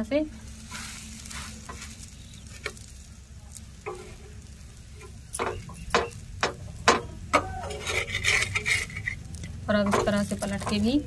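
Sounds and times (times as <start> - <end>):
buns sizzling on a pan: 0.0 - 11.0
utensil knocking against pan: 5.4 - 7.5, 9.8 - 10.9.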